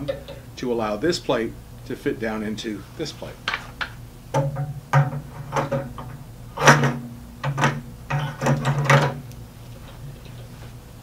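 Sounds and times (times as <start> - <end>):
metal knocks: 4.3 - 9.2
metal plate clunking and rattling: 4.3 - 9.2.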